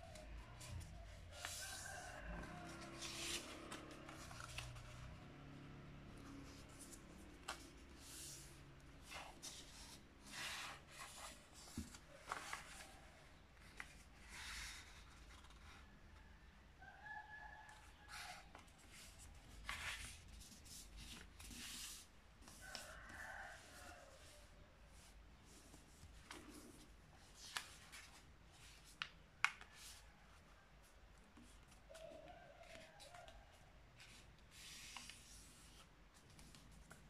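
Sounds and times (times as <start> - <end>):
paper rustling and sliding: 0.0 - 5.4, 6.2 - 15.7.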